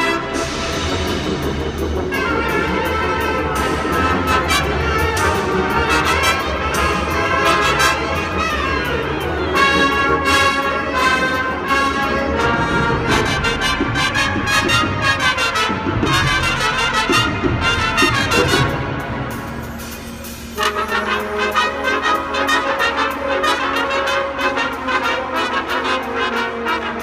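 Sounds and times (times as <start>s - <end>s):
brass and saxophone chords: 0.0s - 27.0s
percussion hits: 13.1s - 22.0s.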